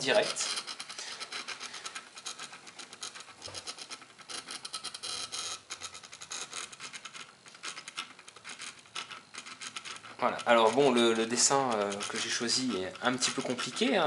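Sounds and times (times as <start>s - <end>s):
stepper motors ticking and rasping: 8.9s - 14.0s.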